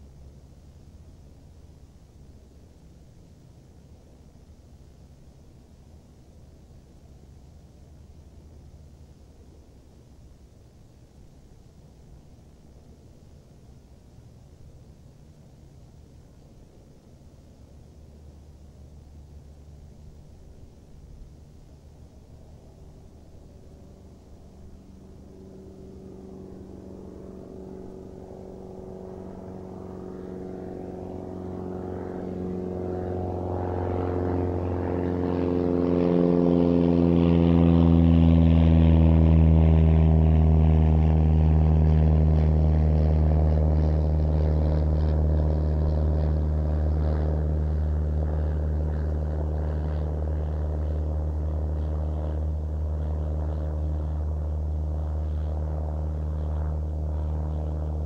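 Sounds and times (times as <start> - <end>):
propeller airplane engine drone: 0.0 - 58.0.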